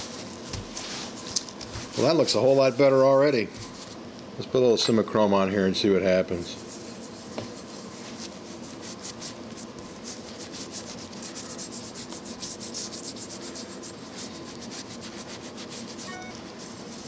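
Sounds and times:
cloth rubbing on metal: 0.0 - 2.9, 6.6 - 17.0.

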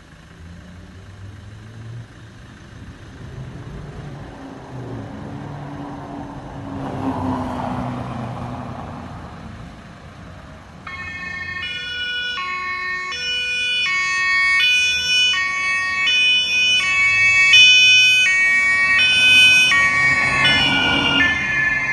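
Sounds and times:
vehicle engine: 0.0 - 21.9
two-tone siren: 10.8 - 21.9.

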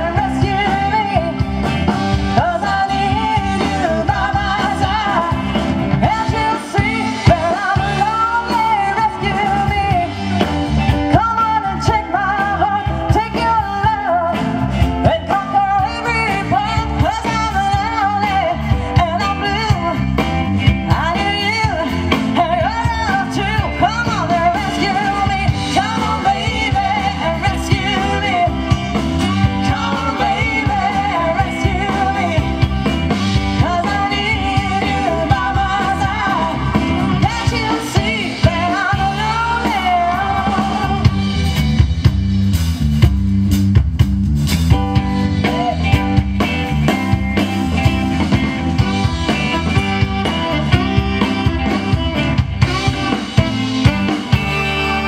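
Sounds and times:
woman singing with vibrato: 0.0 - 41.4
electric guitar: 0.0 - 55.0
live band playing: 0.0 - 55.0.

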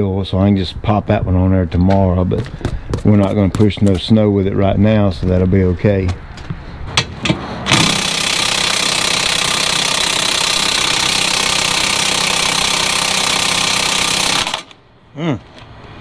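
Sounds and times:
impact driver hammering bolt: 7.7 - 14.8.

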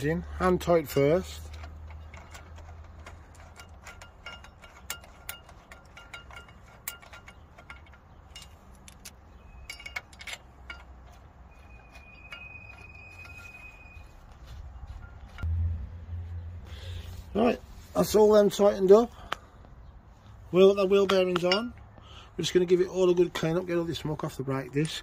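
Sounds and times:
hand tool clinking on bolts: 0.4 - 15.5, 21.0 - 21.9
brake disc ringing: 9.3 - 15.4.

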